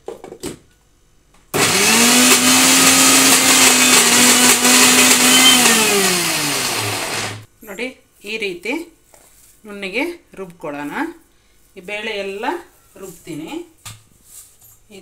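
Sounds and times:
mixer grinder motor running: 0:01.6 - 0:07.5.

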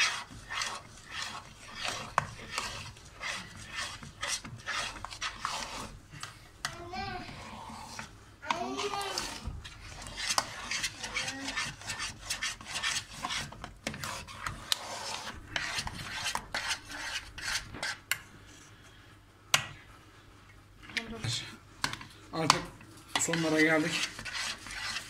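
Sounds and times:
metal spoon scraping a pot: 0:00.0 - 0:18.1, 0:23.1 - 0:25.0.

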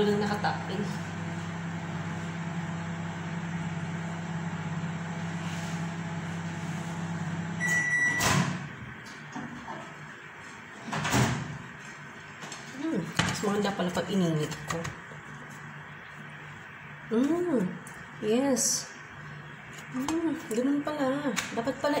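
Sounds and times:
microwave oven humming: 0:00.0 - 0:22.0
microwave short beep: 0:07.6 - 0:08.6.

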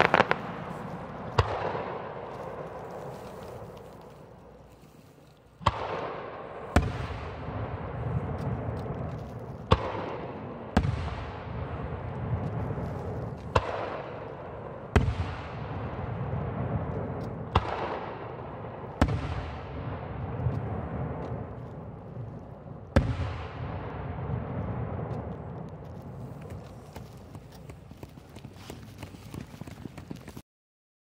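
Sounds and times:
firework shells booming: 0:00.0 - 0:03.1, 0:05.6 - 0:27.0.

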